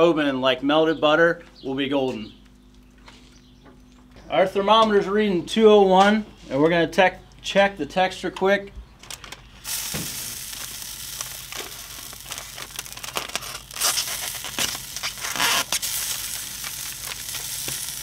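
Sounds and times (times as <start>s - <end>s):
butcher paper crinkling and tearing: 9.1s - 18.0s
grill sizzling: 9.1s - 18.0s.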